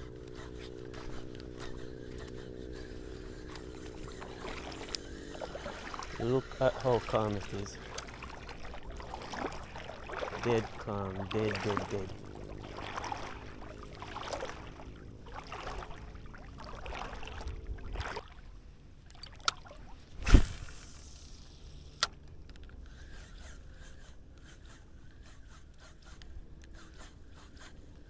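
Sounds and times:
fishing reel ticking: 0:00.0 - 0:12.2, 0:20.8 - 0:28.0
water sloshing from wading: 0:00.0 - 0:20.9
low steady hum: 0:00.0 - 0:28.0.

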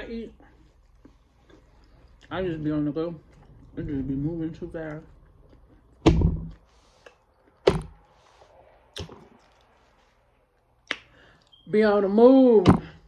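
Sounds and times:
sharp knocks with deep thud: 0:06.0 - 0:06.6, 0:07.6 - 0:08.0.

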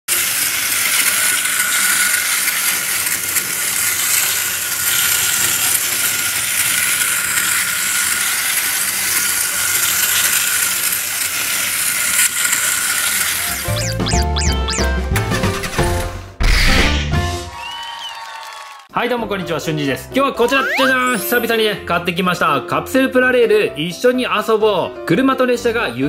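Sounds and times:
wind-up toy train whirring: 0:00.1 - 0:13.9.

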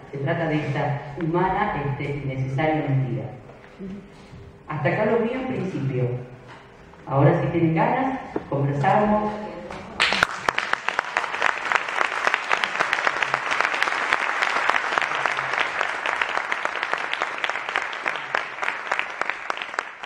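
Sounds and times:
audience applauding: 0:10.0 - 0:20.0.

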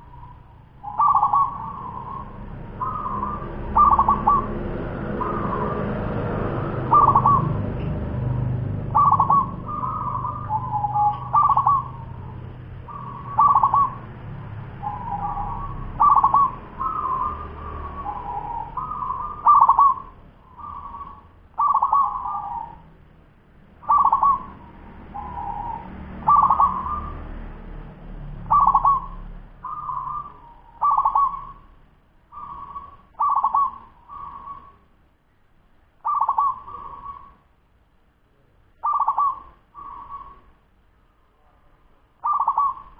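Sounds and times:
dove cooing: 0:00.0 - 0:22.9, 0:23.8 - 0:27.5, 0:28.4 - 0:31.7, 0:32.3 - 0:34.8, 0:36.0 - 0:37.4, 0:38.8 - 0:40.5, 0:42.2 - 0:42.9.

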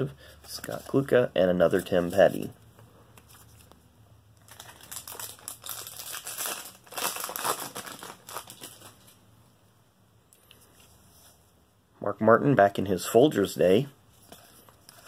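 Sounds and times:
wrapper crinkling and tearing: 0:04.4 - 0:09.2.

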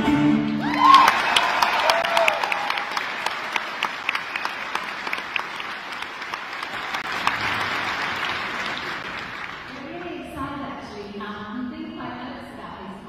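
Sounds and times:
audience applauding: 0:00.5 - 0:10.0.

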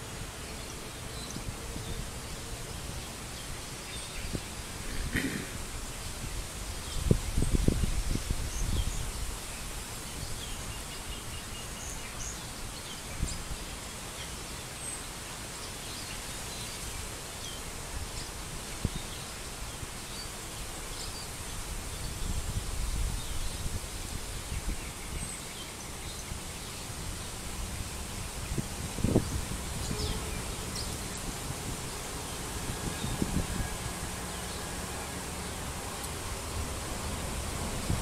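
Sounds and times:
rustling leaves: 0:00.0 - 0:38.0
wind: 0:00.0 - 0:38.0.

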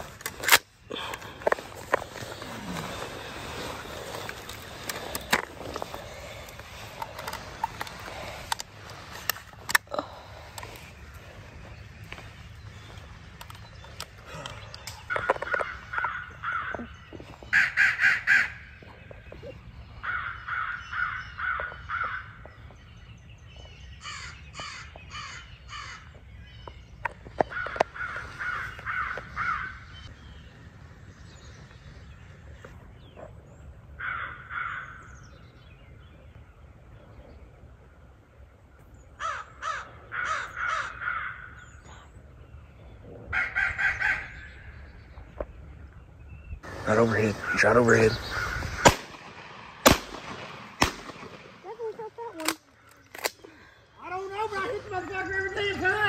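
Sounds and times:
crows cawing: 0:15.1 - 0:18.8, 0:20.0 - 0:22.5, 0:24.0 - 0:26.1, 0:27.4 - 0:30.1, 0:34.0 - 0:35.2, 0:39.2 - 0:41.8, 0:43.3 - 0:44.7, 0:47.3 - 0:49.0.

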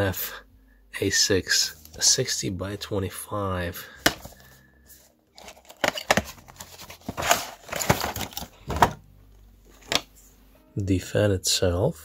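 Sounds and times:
cardboard and plastic crinkling: 0:05.3 - 0:09.0.

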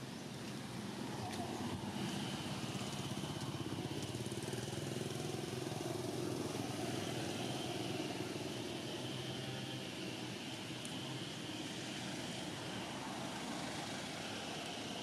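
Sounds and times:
small engine idling: 0:01.2 - 0:10.2.

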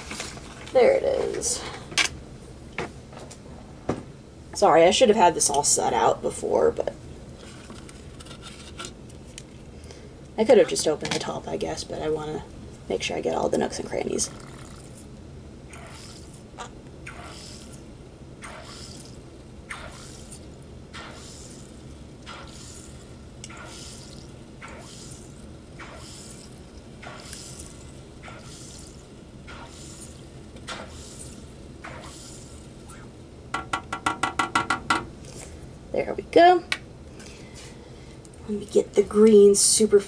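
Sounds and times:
air stone bubbling in water: 0:14.3 - 0:14.9
bubbles sputtering: 0:14.3 - 0:15.0.

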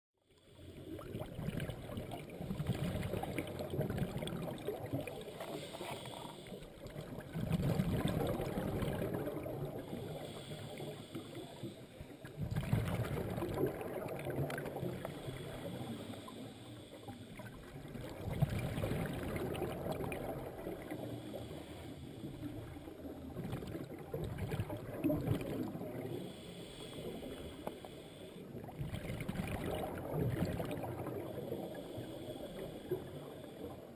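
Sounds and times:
bubbling exhaust underwater: 0:00.2 - 0:33.9
regulator breathing hiss: 0:05.3 - 0:06.8, 0:09.6 - 0:12.3, 0:14.8 - 0:17.7, 0:20.4 - 0:23.2, 0:26.1 - 0:28.6, 0:31.1 - 0:33.9.

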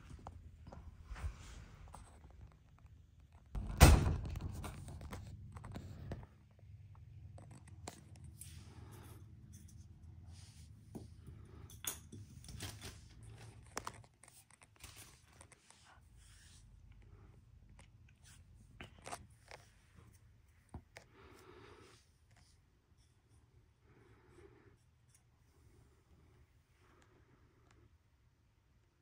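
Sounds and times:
loud thump: 0:03.6 - 0:04.9.

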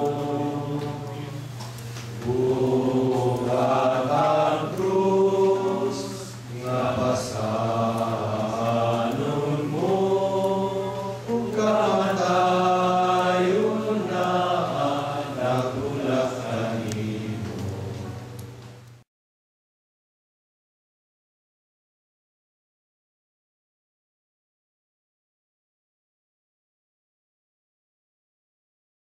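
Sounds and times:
choir singing a chant: 0:00.0 - 0:01.6, 0:02.2 - 0:18.3
steady low hum: 0:00.0 - 0:19.0.

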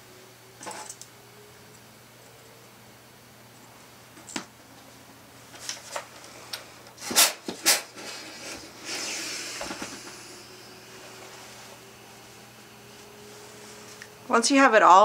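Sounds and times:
steam iron hissing: 0:06.3 - 0:14.3.

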